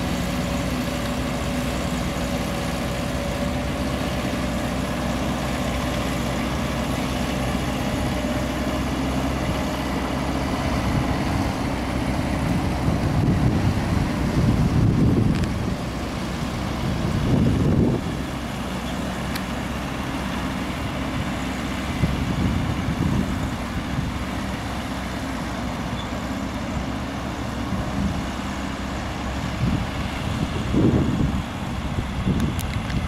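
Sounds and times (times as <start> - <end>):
distant off-road vehicle engines: 0.0 - 33.0
wind rumbling on microphone: 10.6 - 18.5, 20.8 - 24.6, 29.2 - 33.0.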